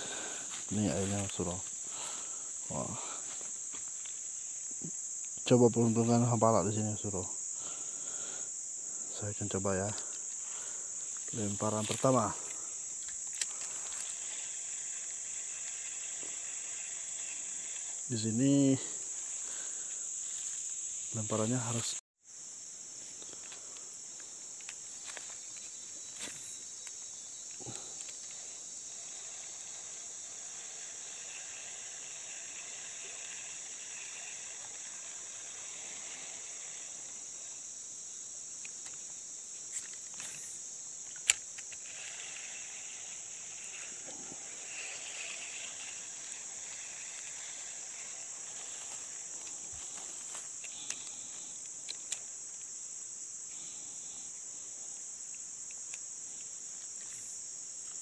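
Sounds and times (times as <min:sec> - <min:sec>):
insects droning: 0:00.0 - 0:58.0.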